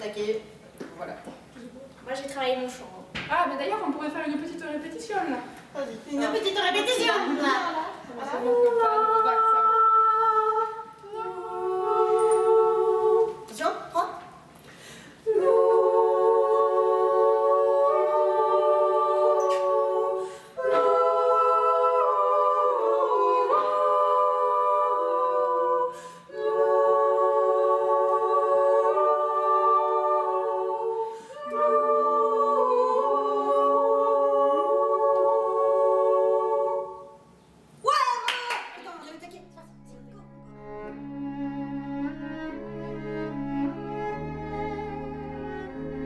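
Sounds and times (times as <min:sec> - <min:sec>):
women singing a cappella harmony: 0:06.1 - 0:14.4, 0:15.0 - 0:37.6.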